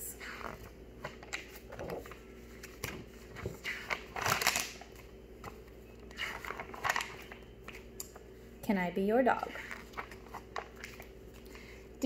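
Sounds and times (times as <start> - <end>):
book pages turning: 0.4 - 7.9, 9.6 - 11.4.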